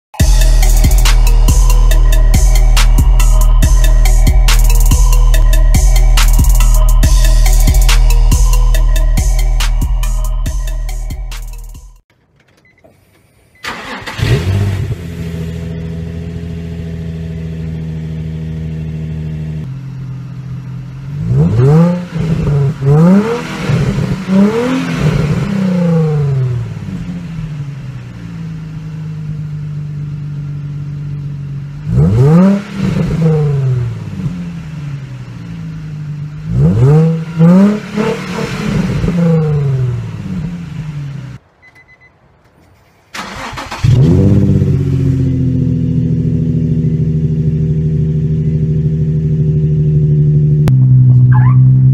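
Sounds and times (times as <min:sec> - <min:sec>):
car engine idling: 0:00.1 - 0:51.9
car engine starting: 0:00.2 - 0:51.9
car engine revving: 0:13.6 - 0:41.4, 0:43.2 - 0:51.9.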